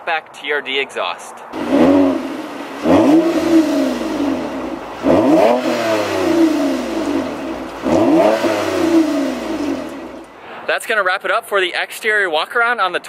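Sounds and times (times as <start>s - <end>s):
car engine revving: 1.6s - 10.3s.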